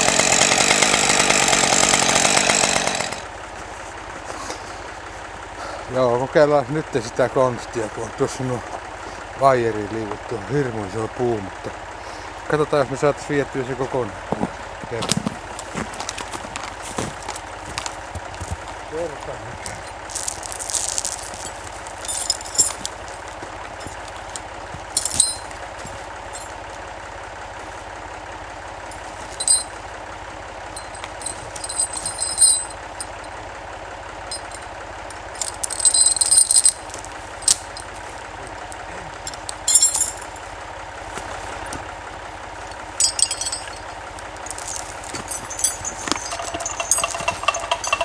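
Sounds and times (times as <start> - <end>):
tractor engine idling: 0.0 - 48.0
chains clinking and rattling: 19.7 - 23.1, 25.0 - 25.5, 26.3 - 26.6, 28.9 - 29.8, 30.7 - 33.4, 34.3 - 34.7, 35.3 - 37.9, 39.2 - 40.4, 42.6 - 48.0.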